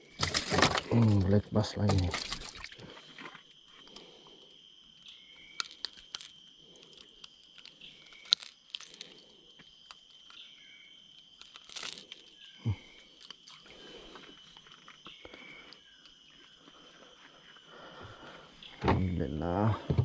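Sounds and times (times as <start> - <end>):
clicks rustles and crunching handling: 0.0 - 4.0, 5.0 - 10.5, 11.1 - 16.2
high insect drone: 0.0 - 20.0.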